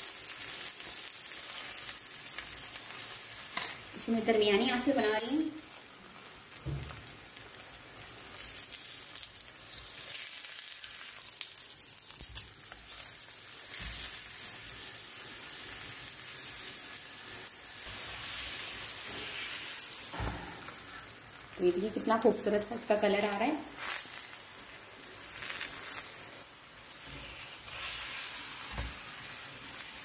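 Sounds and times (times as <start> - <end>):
flatbread sizzling in oil: 0.0 - 30.0.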